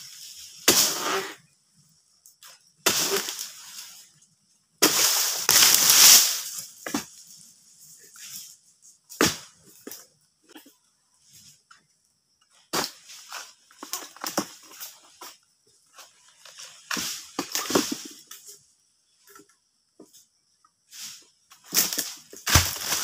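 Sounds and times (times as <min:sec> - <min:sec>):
dry palm fronds cracking: 0:05.0 - 0:06.6, 0:21.7 - 0:23.0.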